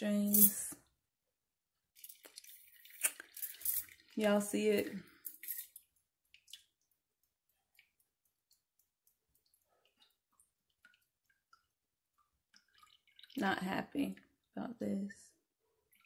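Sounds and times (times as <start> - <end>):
juice dripping into bowl: 2.1 - 4.2, 5.1 - 14.6.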